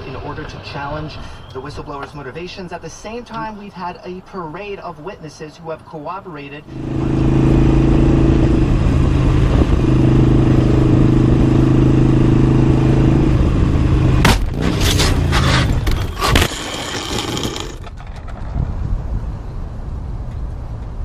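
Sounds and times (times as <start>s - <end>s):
motorcycle engine running: 6.7s - 17.8s
wind noise: 6.8s - 16.5s, 17.8s - 21.0s
scraping along road: 13.9s - 19.1s.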